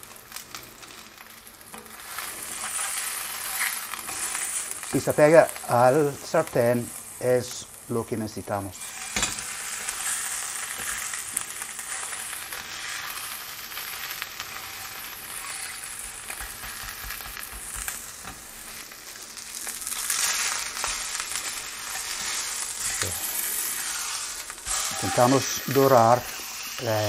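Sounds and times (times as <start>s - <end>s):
chicken sizzling in a frying pan: 0.0s - 27.0s.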